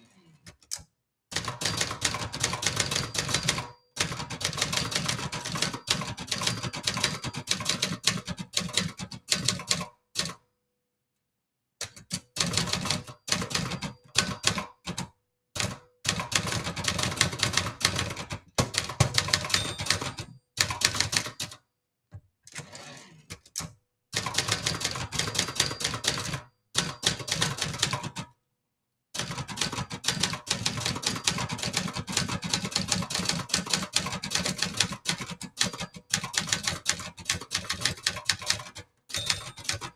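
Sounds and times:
typewriter typebar strikes: 0:01.4 - 0:07.6, 0:15.6 - 0:21.6, 0:24.2 - 0:28.1, 0:29.3 - 0:39.9
typewriter carriage return: 0:01.4 - 0:10.3, 0:11.9 - 0:14.9, 0:15.6 - 0:21.6, 0:22.5 - 0:28.3, 0:29.2 - 0:39.9.

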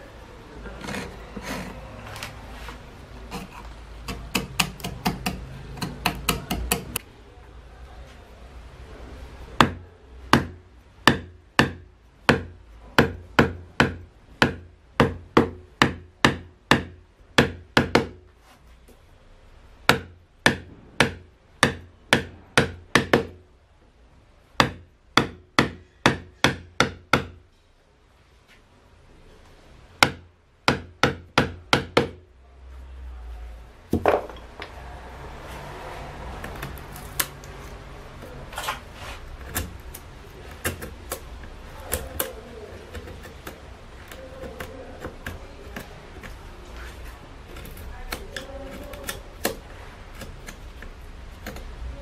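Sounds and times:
chisel scraping wood: 0:00.6 - 0:07.0, 0:36.4 - 0:51.8
mallet striking chisel: 0:03.3 - 0:07.0, 0:09.6 - 0:18.2, 0:19.8 - 0:23.4, 0:24.6 - 0:27.4, 0:30.0 - 0:32.2, 0:47.6 - 0:50.6.

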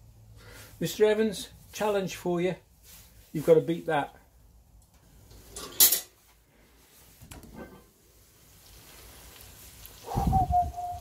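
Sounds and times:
omelette sizzling faintly: 0:07.8 - 0:11.0.

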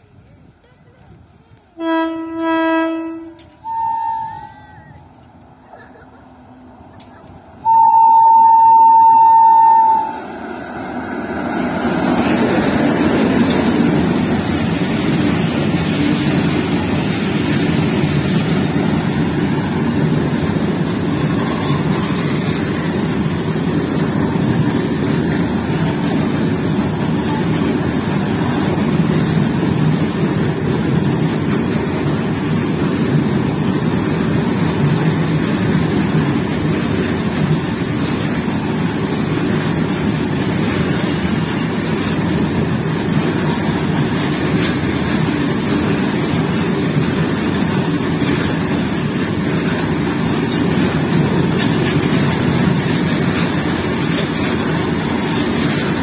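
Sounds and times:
locomotive horn blast: 0:01.8 - 0:05.0, 0:07.6 - 0:10.3
freight train wheels clattering: 0:11.1 - 0:56.0.

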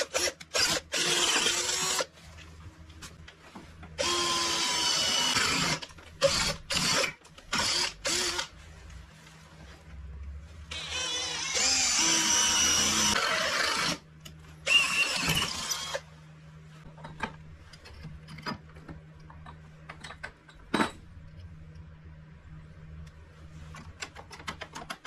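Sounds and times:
power tool whining: 0:10.7 - 0:14.0.

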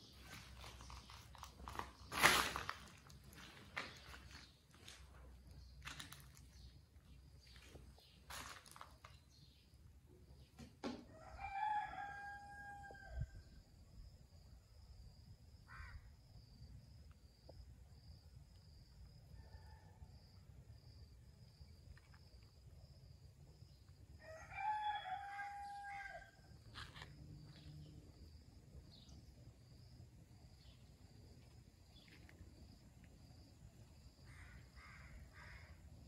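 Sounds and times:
rooster crowing: 0:11.1 - 0:13.4, 0:24.2 - 0:26.5.

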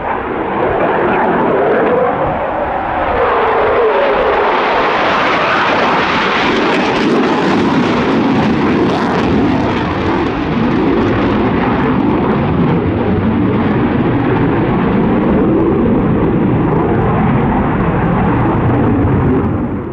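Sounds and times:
jet engine roar: 0:00.0 - 0:19.9.

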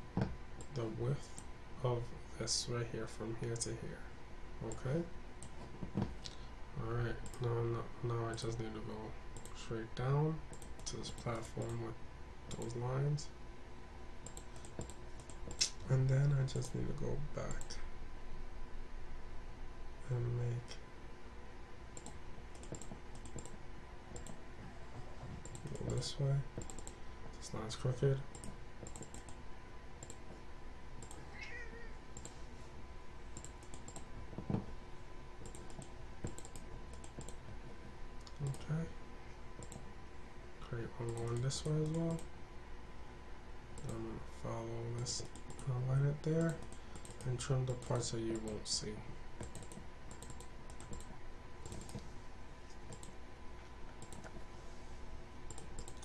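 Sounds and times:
faint steady hum: 0:00.0 - 0:56.0
computer mouse clicking: 0:07.2 - 0:07.5, 0:09.4 - 0:09.6, 0:10.5 - 0:11.8, 0:12.5 - 0:12.8, 0:14.2 - 0:16.8, 0:22.0 - 0:24.4, 0:25.2 - 0:27.0, 0:28.3 - 0:29.4, 0:30.0 - 0:30.4, 0:31.0 - 0:31.2, 0:32.2 - 0:32.4, 0:33.3 - 0:34.6, 0:35.4 - 0:37.5, 0:39.6 - 0:39.8, 0:41.0 - 0:42.3, 0:43.8 - 0:44.0, 0:45.0 - 0:45.7, 0:46.4 - 0:48.6, 0:49.4 - 0:52.1, 0:52.7 - 0:53.2, 0:54.0 - 0:54.4, 0:55.5 - 0:56.0.

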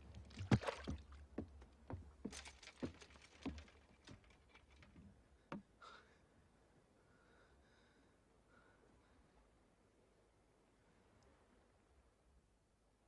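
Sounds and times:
wooden deck knocks and creaks: 0:00.1 - 0:05.7.

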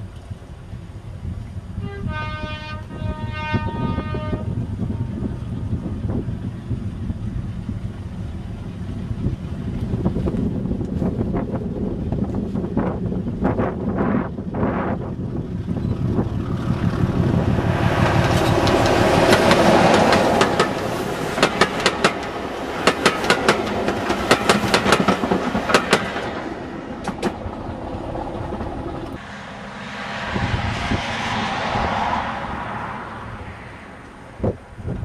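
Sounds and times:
diesel locomotive engine rumble: 0:00.0 - 0:35.0
train wheels clacking over rail joints: 0:15.6 - 0:29.2
soft rushing noise: 0:26.3 - 0:35.0.

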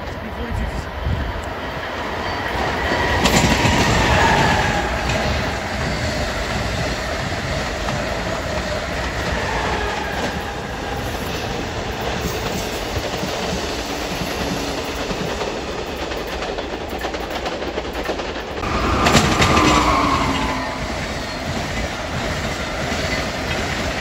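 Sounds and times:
train wheels clattering on rails: 0:00.0 - 0:24.0
train whine falling in pitch: 0:18.6 - 0:23.6.

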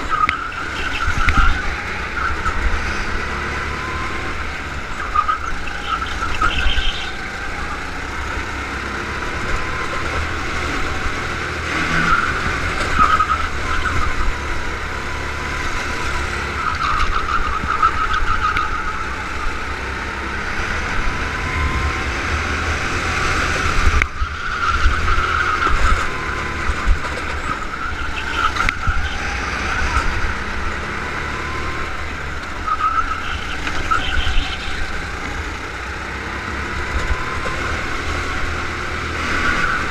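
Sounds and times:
go-kart engine racing: 0:00.0 - 0:39.9
wind rumble on microphone: 0:20.6 - 0:30.5.

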